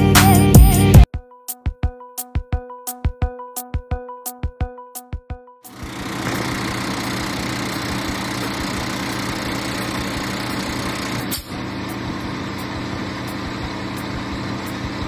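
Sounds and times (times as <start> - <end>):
diesel truck engine idling: 5.8 - 15.0.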